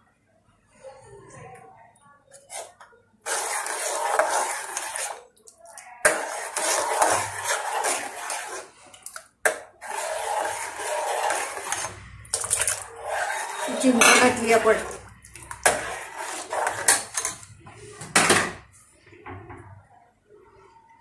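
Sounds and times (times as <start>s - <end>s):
spoon scraping and clinking pot: 2.3s - 17.5s.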